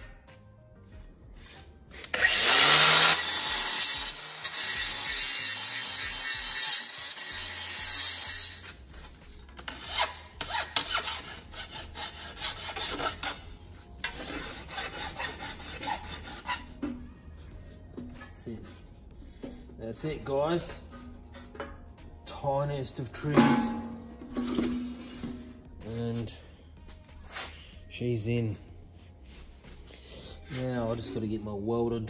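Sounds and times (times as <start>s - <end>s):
angle grinder grinding steel: 2.0s - 8.8s
hand file rasping on metal: 9.5s - 17.0s.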